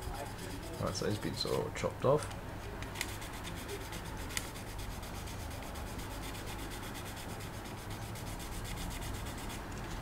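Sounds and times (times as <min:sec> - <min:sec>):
sanding pad rubbing plastic: 0:00.0 - 0:01.6, 0:03.2 - 0:09.6.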